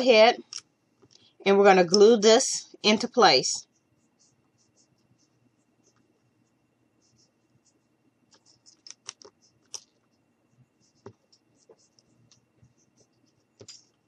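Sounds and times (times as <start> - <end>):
wooden sticks clicking on tabletop: 8.7 - 9.9.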